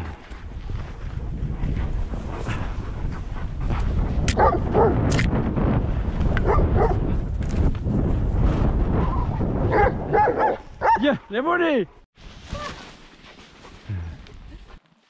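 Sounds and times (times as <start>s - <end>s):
wind rumbling: 0.0s - 12.7s
dogs barking and yipping: 4.3s - 5.0s, 9.1s - 11.1s
skis moving through snow: 12.2s - 15.0s.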